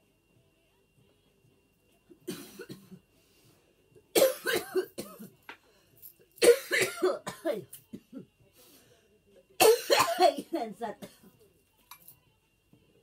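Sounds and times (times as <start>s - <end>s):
woman coughing: 2.3s - 3.0s, 4.2s - 5.4s, 6.4s - 8.3s, 9.6s - 11.3s.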